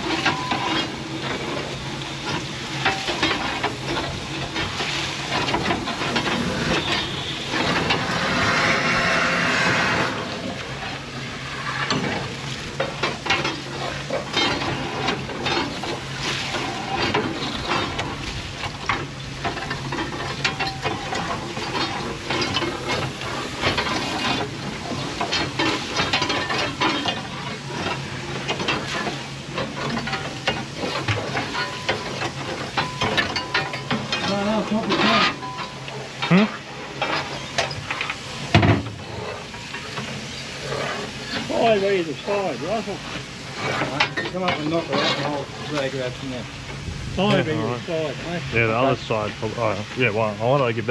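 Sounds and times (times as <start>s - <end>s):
hiss: 0.0s - 19.0s, 19.8s - 33.1s, 35.9s - 46.9s
steel rake scraping clinker: 0.0s - 48.6s.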